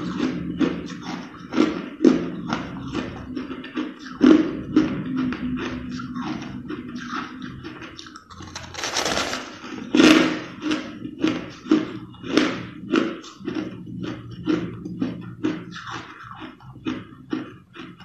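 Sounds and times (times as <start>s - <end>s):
crushed ice crunching: 8.4s - 9.6s.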